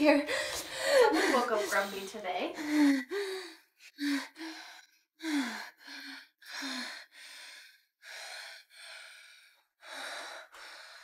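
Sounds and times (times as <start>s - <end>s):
woman gasping and panting: 0.1s - 11.0s.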